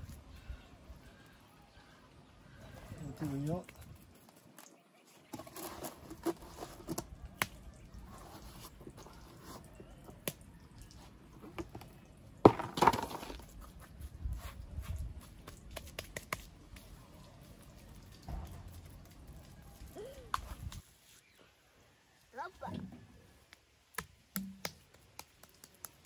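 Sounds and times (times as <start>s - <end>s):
hands patting and scraping earth: 3.1s - 21.4s, 23.4s - 26.0s.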